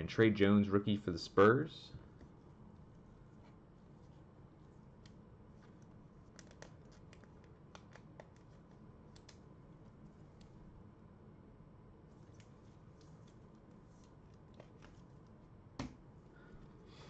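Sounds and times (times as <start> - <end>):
low room hum: 0.0 - 17.0
trading cards being handled: 5.0 - 10.5, 12.1 - 16.0.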